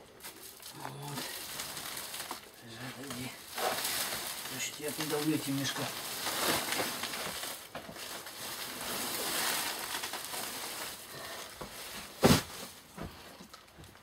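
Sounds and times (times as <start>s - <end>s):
sacks dragged and rustling: 0.0s - 13.5s.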